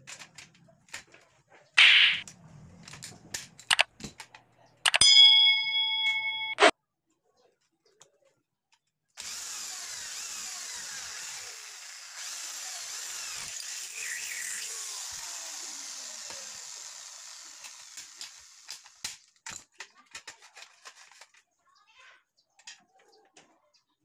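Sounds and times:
sharp clicks: 3.6 - 5.1
electric drill boring into metal: 9.2 - 19.1.

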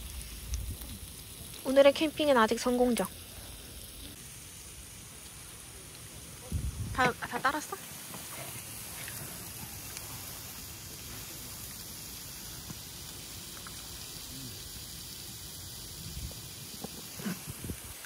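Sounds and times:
wind rumble on microphone: 0.0 - 1.0, 6.5 - 7.1, 15.9 - 16.5, 17.3 - 18.0
meat sizzling on a grill: 0.0 - 18.0.

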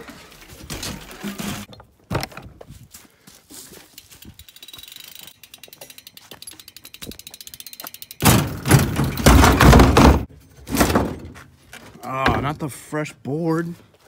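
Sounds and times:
bike hub ratchet ticking: 3.9 - 8.3
bike clattering and knocking: 4.0 - 11.5.

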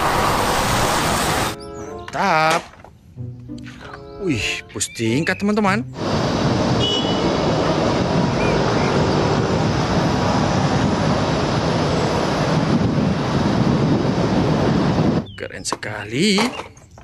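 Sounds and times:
bus driving past: 0.0 - 1.6, 6.0 - 15.0
city traffic noise: 0.0 - 15.4.

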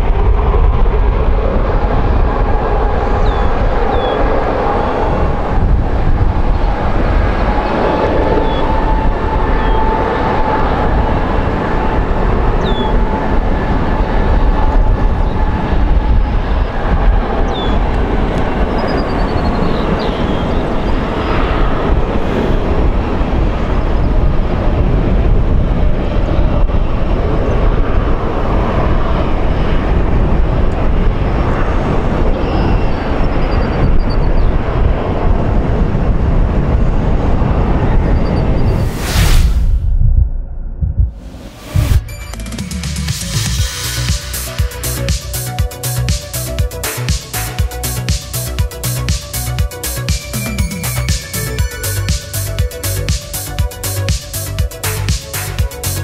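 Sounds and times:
jet engines roaring at takeoff: 0.0 - 39.1, 41.2 - 56.0
jet engine howl: 0.0 - 39.4, 41.2 - 56.0.

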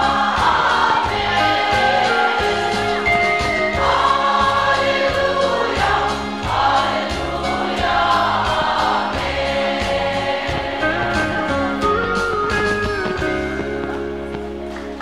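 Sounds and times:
women's choir singing a hymn: 0.0 - 11.8
instrumental accompaniment with bass: 0.0 - 15.0.

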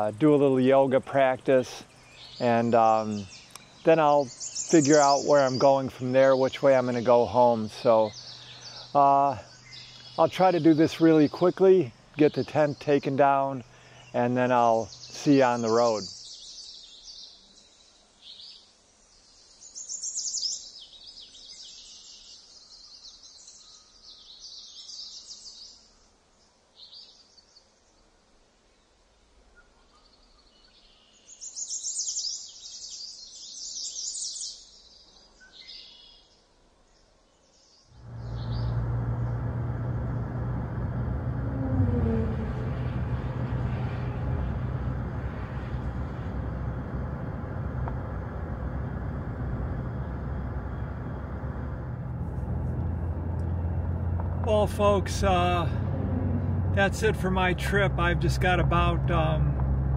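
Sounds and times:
truck road and engine noise: 0.0 - 15.7, 38.0 - 59.9
songbirds chirping: 0.0 - 59.9
low hum: 38.0 - 59.9.

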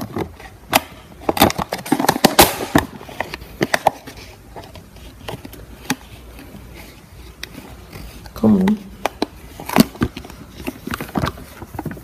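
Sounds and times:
rummaging in refrigerator: 9.2 - 12.0.

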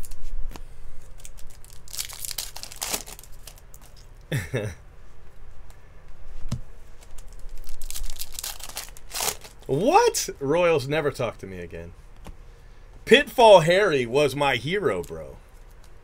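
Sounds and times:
foil wrappers crinkling and tearing: 1.0 - 4.1, 7.0 - 9.8.

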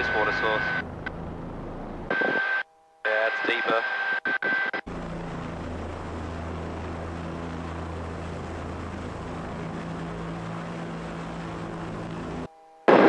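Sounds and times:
helicopter running: 4.8 - 13.0.

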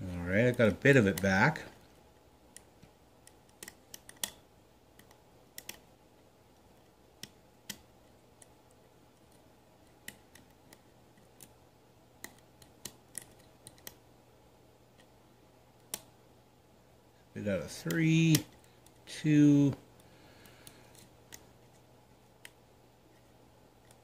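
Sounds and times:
faint steady hum: 0.0 - 24.0
lock pick clicking on pins: 2.5 - 5.9, 12.2 - 14.0.

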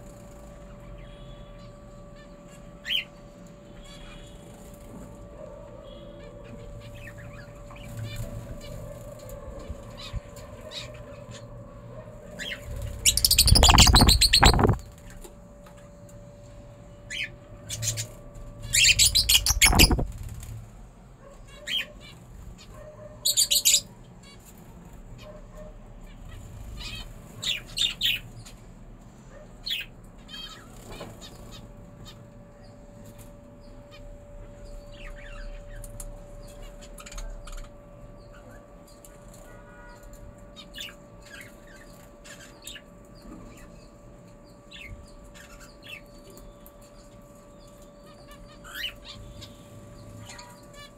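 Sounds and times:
birds flapping wings: 12.7 - 15.1, 19.0 - 20.6
short bird chirps: 13.0 - 14.8, 18.8 - 20.1.

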